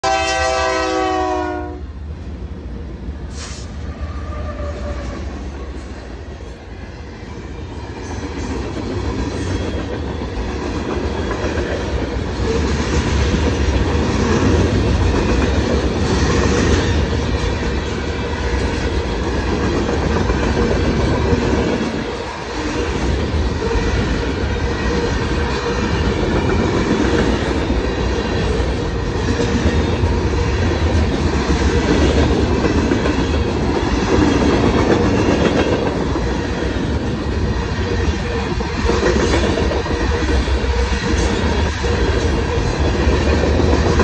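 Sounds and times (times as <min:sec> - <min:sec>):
train horn blast: 0:00.0 - 0:02.0, 0:03.4 - 0:05.4
train rumble: 0:00.0 - 0:44.0.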